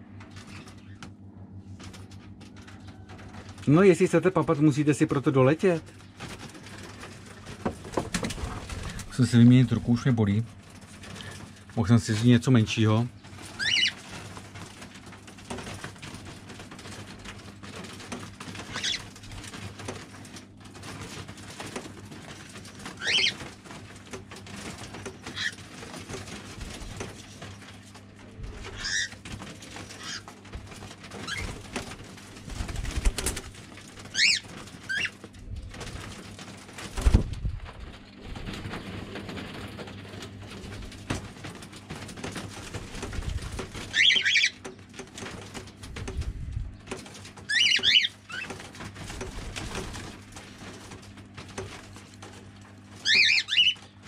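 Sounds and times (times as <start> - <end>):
cockatiels whistling: 53.0 - 53.8.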